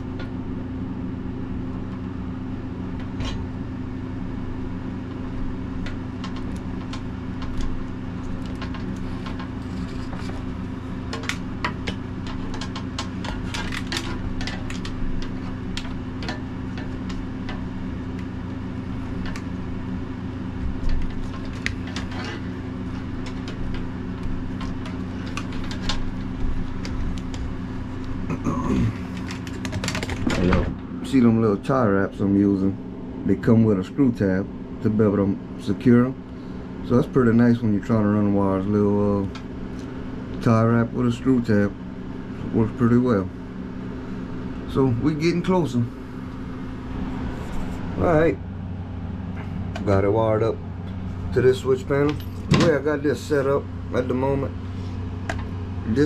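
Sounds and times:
low machine hum: 0:00.0 - 0:56.0
wire clicks and rustles: 0:05.0 - 0:30.8.

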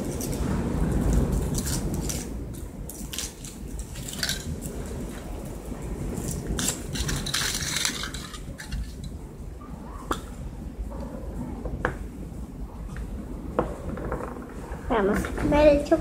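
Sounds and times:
low background rumble: 0:00.0 - 0:16.0
foil wrapper crinkling: 0:06.2 - 0:09.1.

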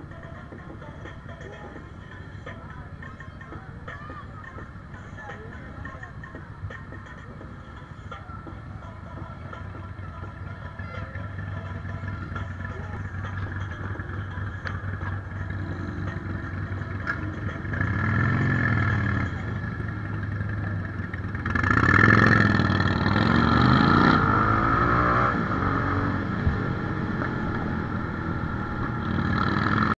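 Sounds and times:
motorcycles idling: 0:00.0 - 0:23.5, 0:25.3 - 0:29.9
motorcycle engine revving: 0:09.2 - 0:29.9.

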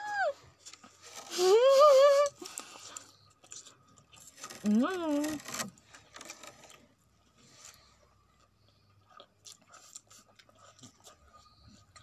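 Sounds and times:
chewing noodles: 0:02.3 - 0:04.7, 0:05.4 - 0:12.0.

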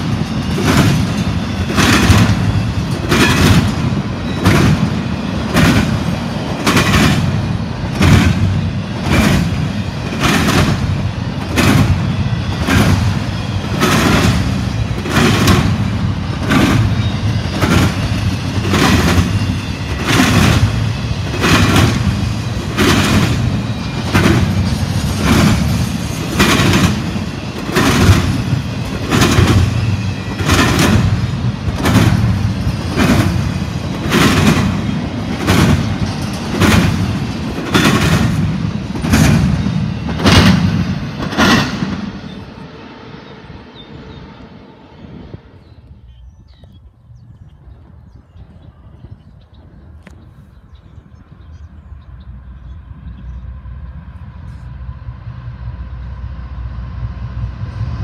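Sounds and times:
train wheels clacking over track: 0:00.0 - 0:42.8
low rumble of passing train cars: 0:00.0 - 0:58.0.

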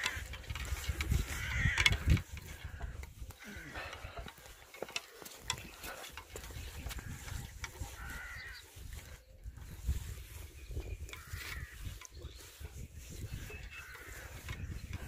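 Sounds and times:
wind on microphone: 0:00.0 - 0:04.3, 0:05.5 - 0:15.0
distant animal calls: 0:00.0 - 0:04.7, 0:07.0 - 0:09.2.

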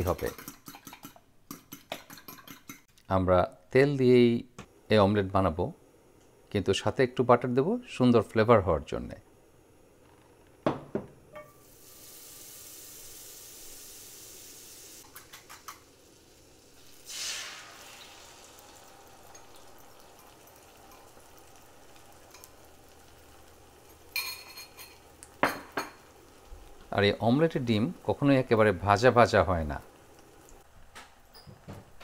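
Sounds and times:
oil sizzling in a frying pan: 0:11.5 - 0:31.5
utensil clinking on pan: 0:23.8 - 0:26.0.

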